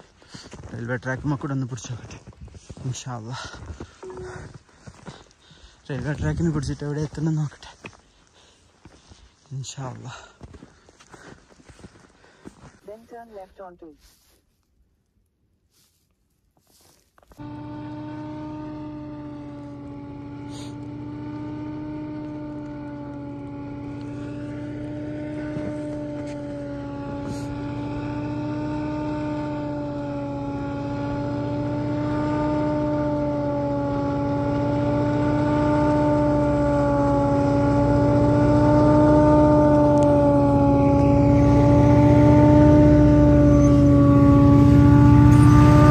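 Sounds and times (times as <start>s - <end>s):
diesel engine rumble: 0.0s - 12.8s, 17.4s - 45.9s
locomotive horn: 17.4s - 45.9s.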